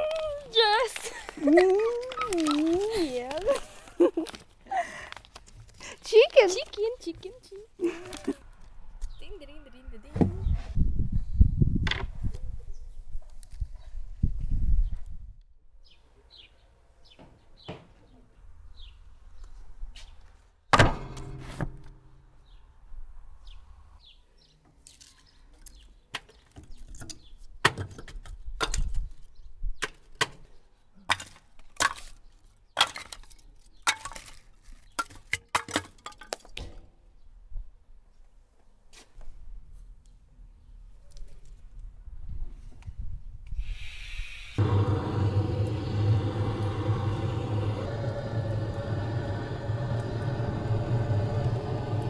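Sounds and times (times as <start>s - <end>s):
loud thud with ring: 20.7s - 22.2s.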